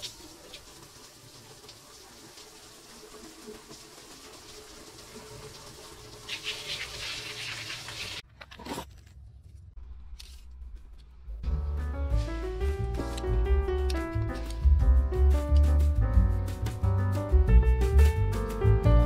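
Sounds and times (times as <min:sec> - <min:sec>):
water jets spraying on plastic: 0:00.0 - 0:08.2.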